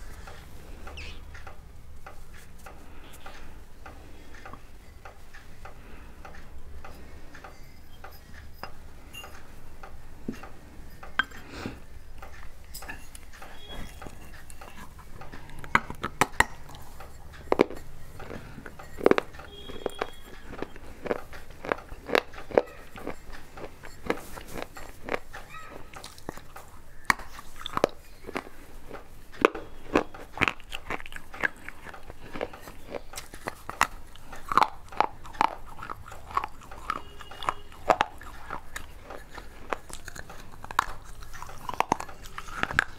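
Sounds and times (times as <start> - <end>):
clay pots clinking: 6.8 - 30.6.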